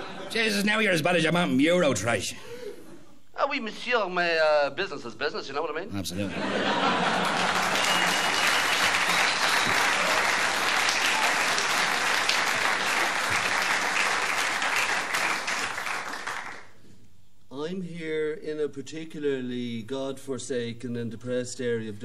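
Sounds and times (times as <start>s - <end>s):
audience applauding: 6.8s - 16.8s.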